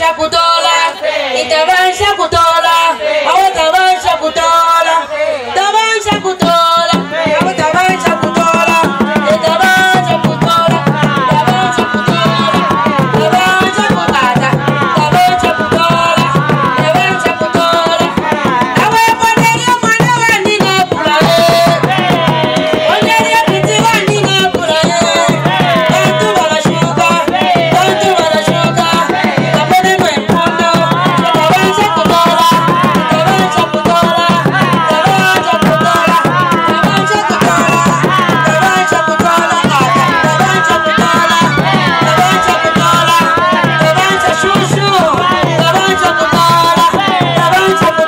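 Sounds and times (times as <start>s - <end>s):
drumming with steady beat: 0.0s - 48.0s
woman singing: 0.0s - 48.0s.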